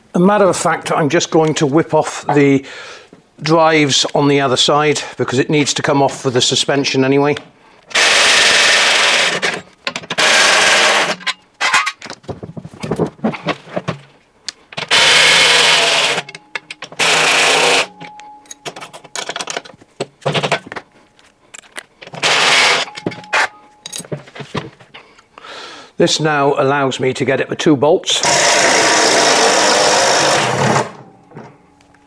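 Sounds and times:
impact driver bursts: 7.9 - 11.2, 14.8 - 16.3, 17.0 - 18.0, 22.2 - 22.9, 28.2 - 31.0.

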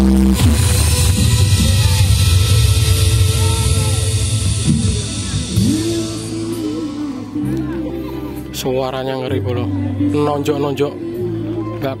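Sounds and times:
dance music with heavy bass: 0.0 - 7.4.

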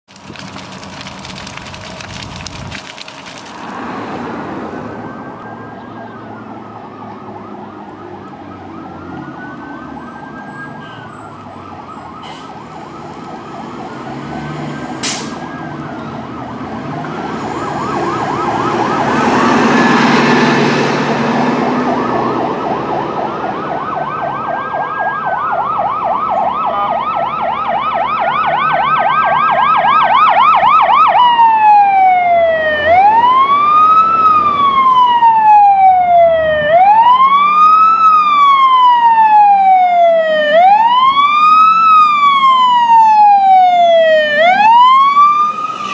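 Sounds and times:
vehicle passing close by: 3.6 - 10.0, 12.5 - 26.7, 41.2 - 45.9
siren wailing: 3.8 - 45.9
siren yelping: 4.9 - 20.4, 21.5 - 45.9.

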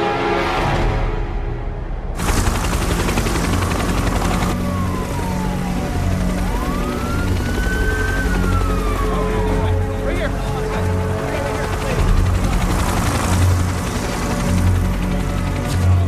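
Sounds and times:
emergency siren wailing: 3.7 - 16.0.

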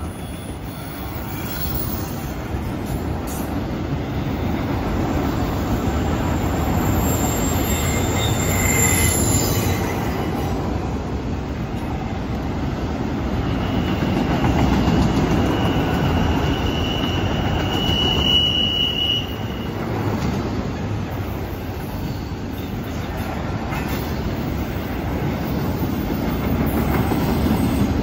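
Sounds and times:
steel wheels rumbling on rail: 0.0 - 28.0
high wheel squeals: 6.2 - 10.5, 13.4 - 20.0.

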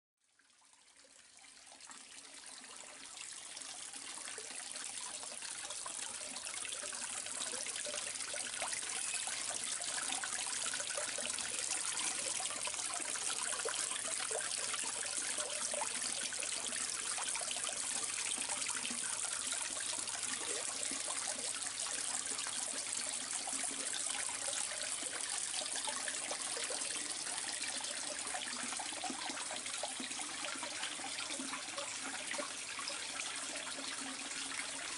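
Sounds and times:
water trickling into a pond: 0.2 - 34.9.

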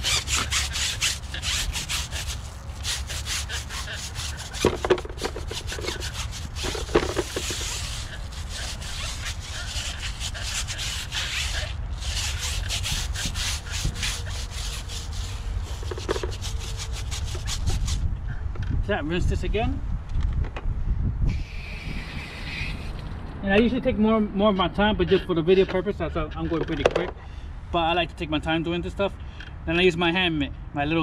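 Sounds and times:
brush scrubbing wet tire: 0.0 - 18.1.

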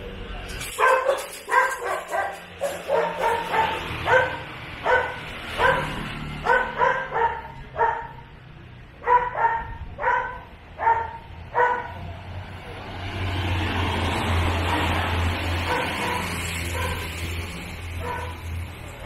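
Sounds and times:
small dog yapping: 0.8 - 5.9.

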